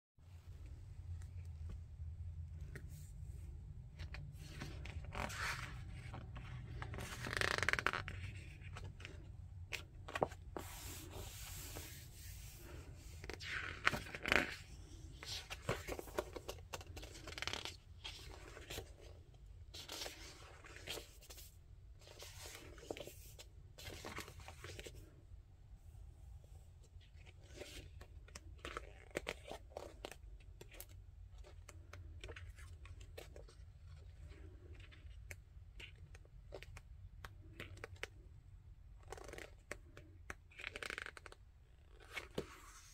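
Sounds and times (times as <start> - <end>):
paper pages rustling: 4.0 - 19.1, 19.7 - 25.1.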